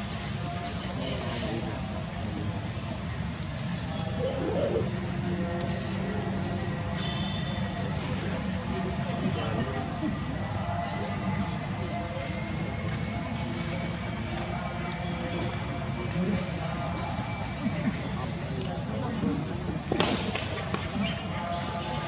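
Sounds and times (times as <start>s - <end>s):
insects buzzing: 0.0s - 22.0s
short rising insect chirp: 3.3s - 6.2s.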